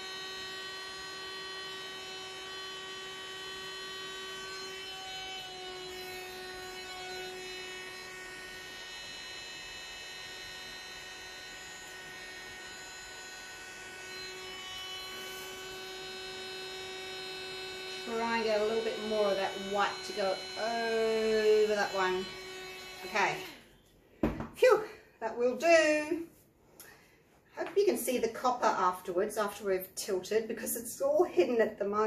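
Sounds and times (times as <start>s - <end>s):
electric air blower running: 0.0s - 23.6s.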